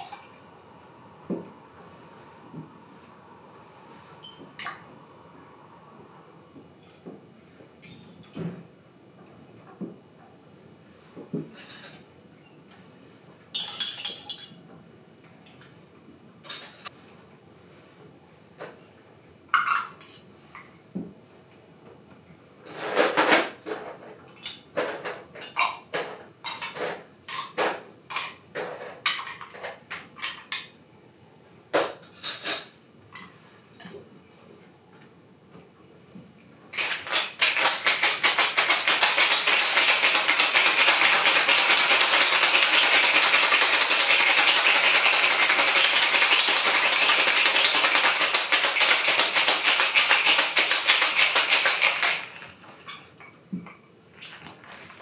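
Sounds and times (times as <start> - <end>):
ice rattling in cocktail shaker: 36.8 - 52.5.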